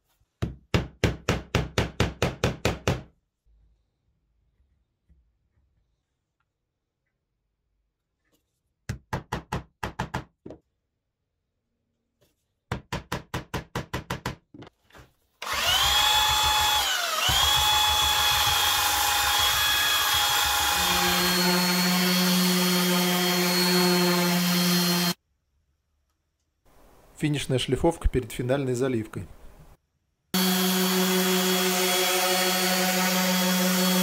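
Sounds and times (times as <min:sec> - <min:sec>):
belt sander whining: 0:15.4 - 0:25.2, 0:30.4 - 0:34.0
orbit sander humming: 0:15.4 - 0:25.2, 0:30.4 - 0:34.0.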